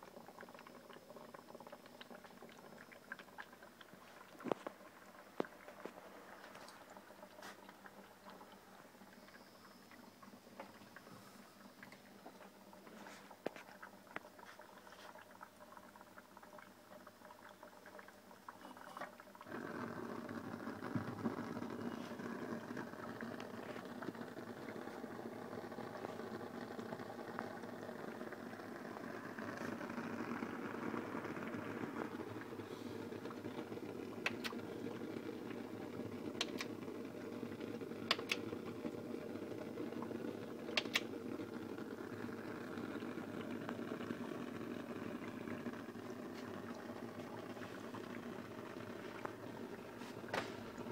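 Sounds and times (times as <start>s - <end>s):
crackling and bubbling: 0.0s - 50.9s
stove burner rushing: 40.7s - 41.1s.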